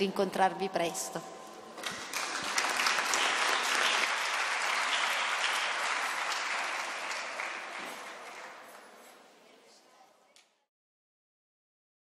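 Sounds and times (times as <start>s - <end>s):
audience applauding: 1.8s - 8.8s.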